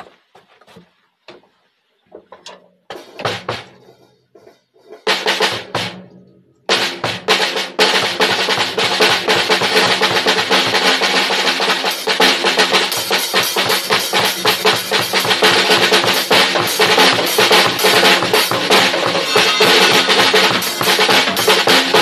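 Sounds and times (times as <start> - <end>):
drum kit played with sticks: 2.8 - 22.0.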